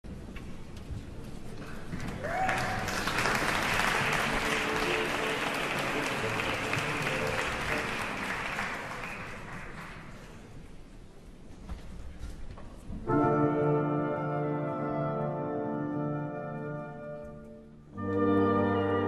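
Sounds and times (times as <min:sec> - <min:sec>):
audience applauding: 0:01.9 - 0:10.6.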